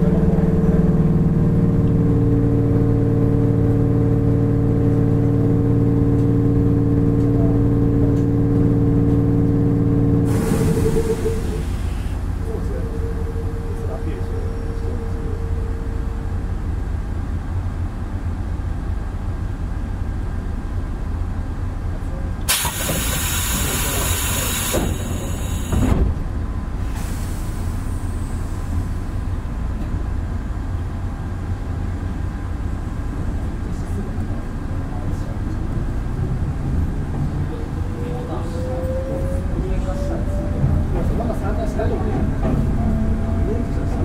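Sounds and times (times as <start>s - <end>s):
train low rumble: 0.0s - 44.0s
compressed air hiss: 22.5s - 25.8s
train motor whine: 22.5s - 26.2s.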